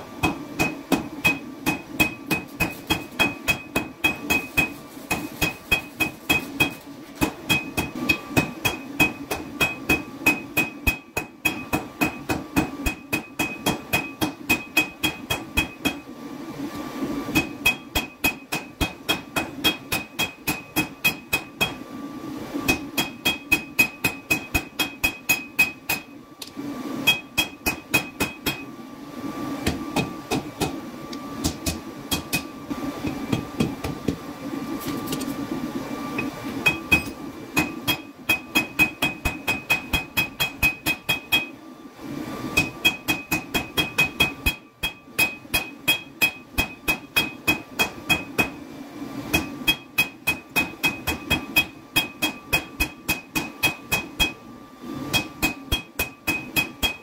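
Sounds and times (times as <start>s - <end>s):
hammer striking steel on anvil: 0.2s - 16.0s, 17.4s - 21.8s, 22.7s - 26.1s, 27.0s - 28.7s, 31.4s - 32.5s, 36.6s - 41.5s, 42.6s - 48.6s, 49.3s - 54.4s, 55.1s - 57.0s.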